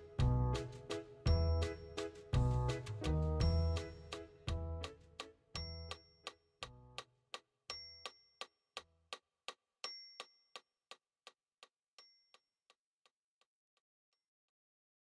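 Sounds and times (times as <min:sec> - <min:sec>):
bass: 0:00.0 - 0:07.0
high chime: 0:05.6 - 0:06.4.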